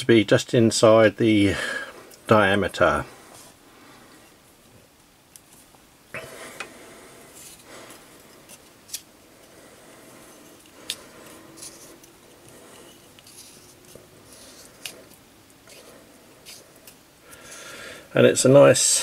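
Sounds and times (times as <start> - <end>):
metal rubbing on metal: 10.1 - 17.0.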